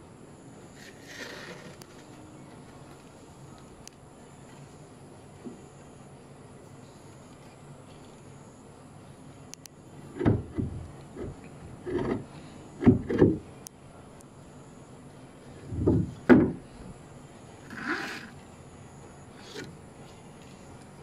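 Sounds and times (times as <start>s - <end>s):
wooden scrape: 0.8s - 2.2s, 17.7s - 18.4s
wooden rudder knocking and creaking: 10.1s - 13.5s, 15.6s - 16.8s.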